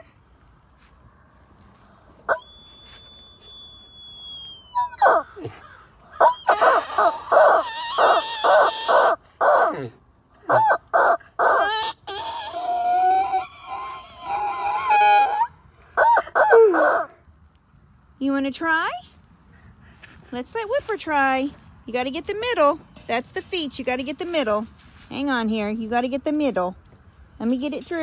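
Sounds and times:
rubber chicken toy squawking: 6.2 - 9.7, 10.5 - 17.1.

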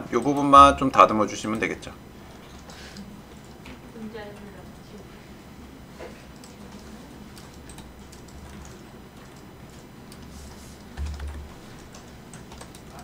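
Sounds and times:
steady low hum: 0.0 - 13.0
computer keyboard and mouse clicks: 0.1 - 1.7, 6.3 - 13.0.

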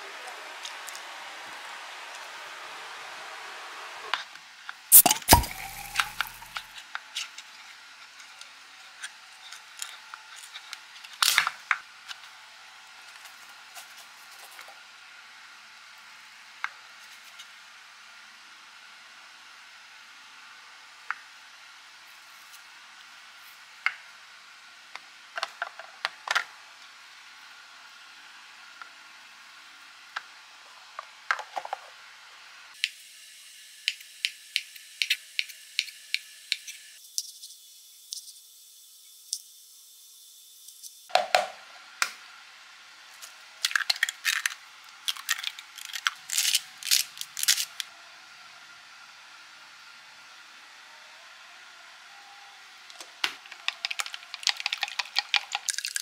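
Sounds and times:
eggs cracking against hard edge: 5.0 - 6.7, 43.6 - 47.8, 53.2 - 56.0
seasoning grinder clicking: 53.3 - 56.0.

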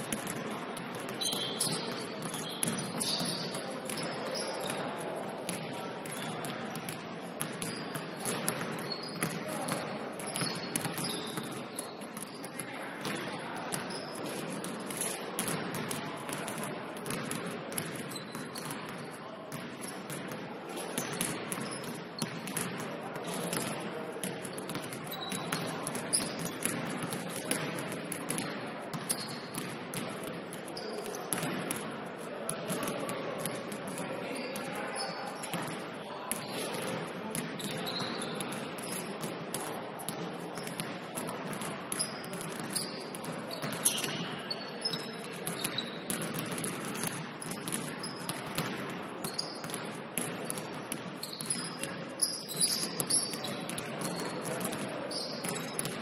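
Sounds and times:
basketball bouncing on court: 0.0 - 4.8, 5.5 - 30.4, 31.3 - 31.9, 36.4 - 56.0
players shouting and chatter: 0.0 - 56.0
shoe squeaks: 1.2 - 4.8, 7.6 - 8.0, 8.8 - 9.3, 10.3 - 12.3, 13.9 - 14.4, 18.1 - 18.6, 24.6 - 26.6, 29.1 - 29.6, 34.4 - 35.4, 37.6 - 39.0, 42.0 - 43.0, 43.6 - 46.0, 49.2 - 49.7, 51.2 - 54.3, 55.1 - 55.8.

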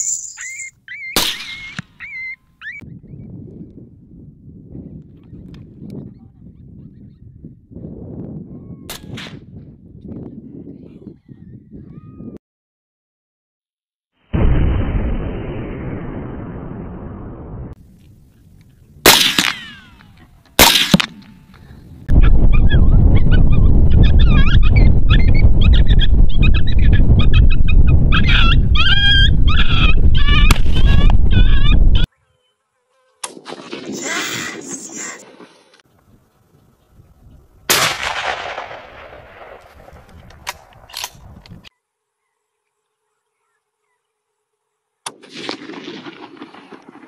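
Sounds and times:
rifle shots: 19.1 - 19.6, 20.6 - 21.3, 37.7 - 41.1, 45.1 - 47.0.

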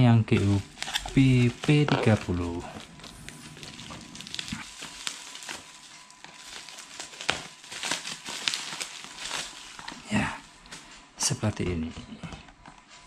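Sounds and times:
bubble wrap crinkling: 0.0 - 11.0
scissors cutting plastic: 0.3 - 2.4, 6.2 - 10.0
bubble wrap snapping: 0.3 - 10.8.

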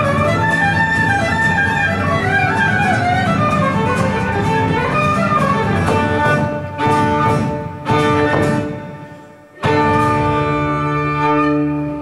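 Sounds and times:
fiddle melody: 0.0 - 12.0
strummed acoustic guitar: 0.0 - 12.0
frame drum beating: 3.3 - 9.2.

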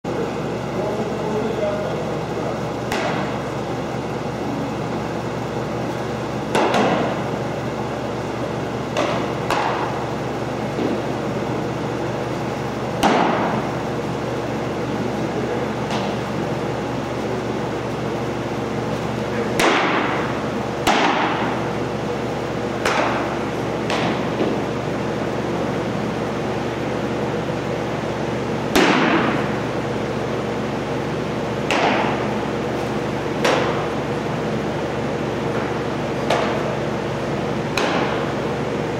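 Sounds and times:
steady background hum: 0.0 - 38.9
echoing baseball smacks: 2.8 - 3.4, 6.5 - 7.3, 8.9 - 10.1, 19.5 - 21.7, 22.7 - 24.7, 28.7 - 29.6, 31.6 - 32.4, 33.4 - 34.0, 35.5 - 36.8, 37.7 - 38.4.

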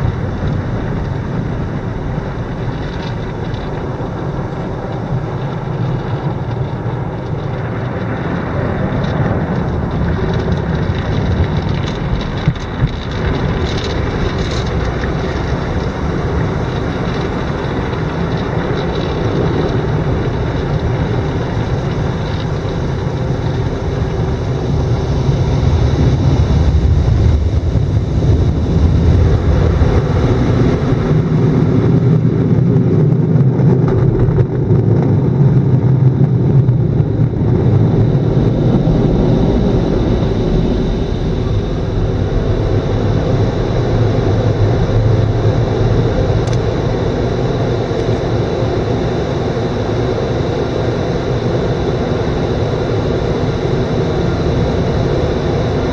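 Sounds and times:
car wash water spray and machinery: 0.0 - 55.9.

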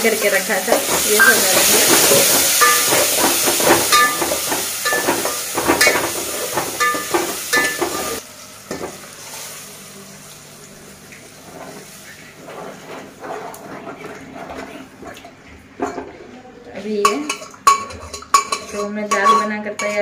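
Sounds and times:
vegetables sizzling in hot oil: 0.0 - 12.4
spoon scraping and clinking on pot: 17.0 - 20.0.

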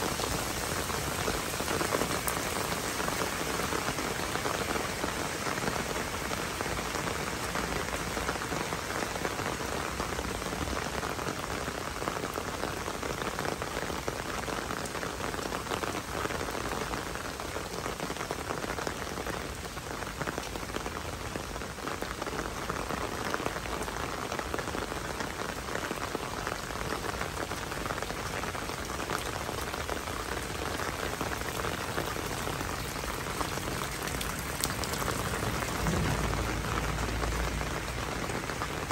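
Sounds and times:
rain on wet paving: 0.0 - 38.9.

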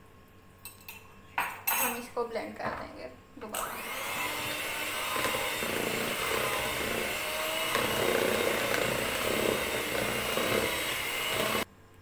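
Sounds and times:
electric hand mixer running: 3.5 - 11.7.

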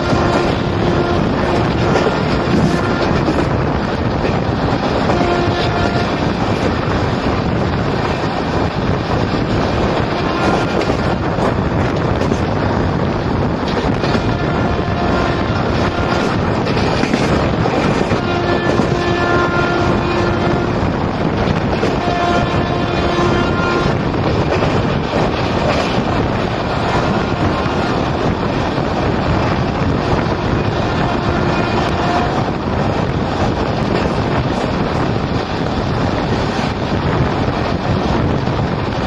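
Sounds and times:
passenger train running: 0.0 - 39.0
wind rushing over microphone: 0.0 - 39.0.

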